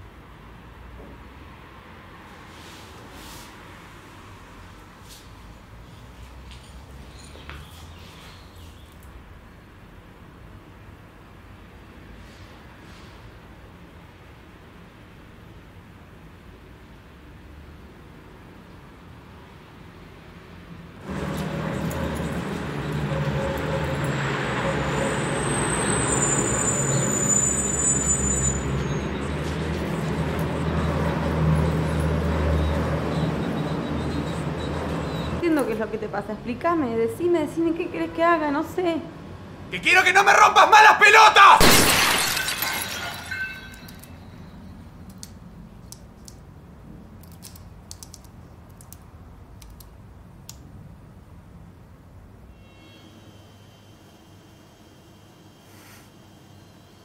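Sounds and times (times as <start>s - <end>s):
city traffic rumble: 0.0s - 52.6s
faint high whine: 52.5s - 57.0s.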